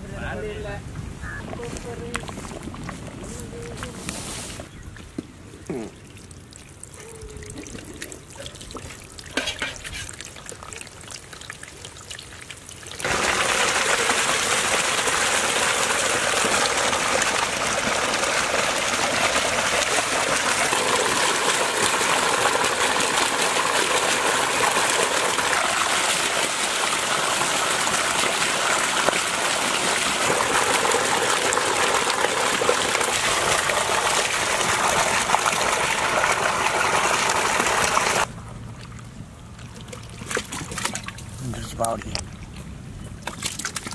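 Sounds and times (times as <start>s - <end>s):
water pouring and splashing: 1.9s - 43.9s
water gushing from a pipe: 5.8s - 38.3s.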